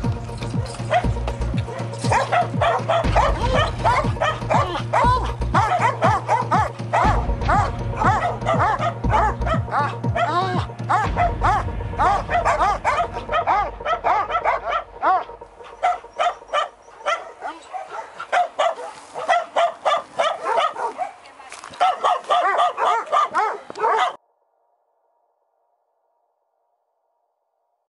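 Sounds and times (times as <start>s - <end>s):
background music: 0.0s - 21.2s
dogs barking: 0.0s - 24.2s.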